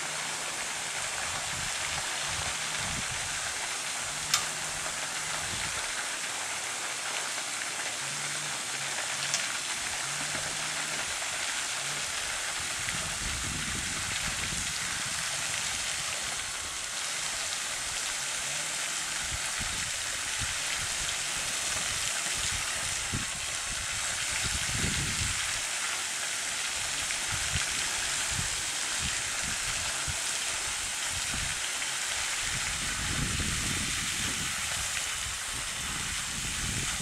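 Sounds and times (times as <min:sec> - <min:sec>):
steady high hiss: 0:00.0 - 0:37.0
wind buffeting microphone: 0:01.0 - 0:03.6, 0:12.5 - 0:16.8, 0:19.2 - 0:25.6, 0:27.2 - 0:31.7, 0:32.4 - 0:37.0.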